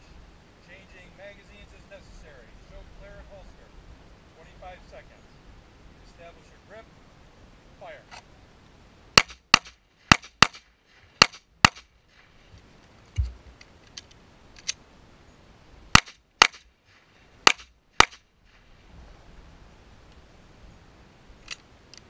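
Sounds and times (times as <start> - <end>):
pistol shots: 9.2 - 10.6, 11.2 - 11.9, 16.0 - 16.6, 17.4 - 18.2
dull thump: 13.1 - 13.6.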